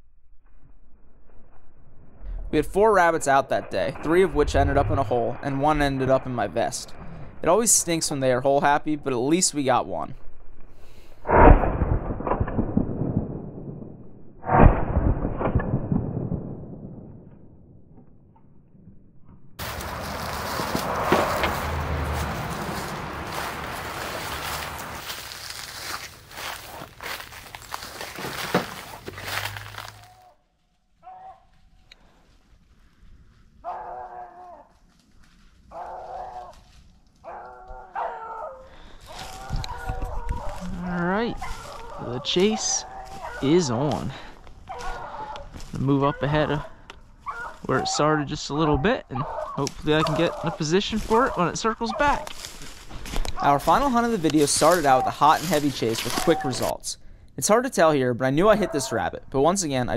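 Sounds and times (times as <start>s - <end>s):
rustling noise: 2.2s - 8.0s, 19.6s - 30.2s, 38.8s - 45.9s, 52.0s - 56.8s
beagles baying: 35.6s - 43.9s, 44.6s - 52.6s.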